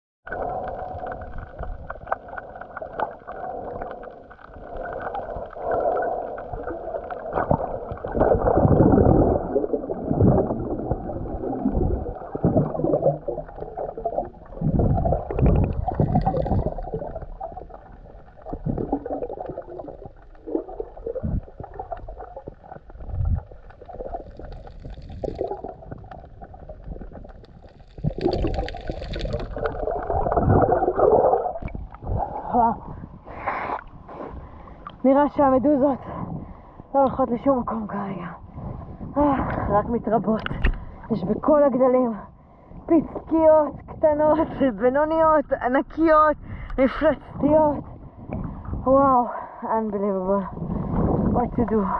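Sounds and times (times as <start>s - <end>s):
muffled underwater gurgling: 0.3s - 33.3s
low underwater rumbles: 0.3s - 51.9s.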